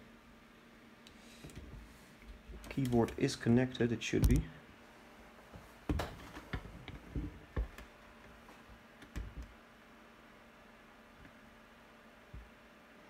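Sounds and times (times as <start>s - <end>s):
computer fans humming: 0.0s - 13.0s.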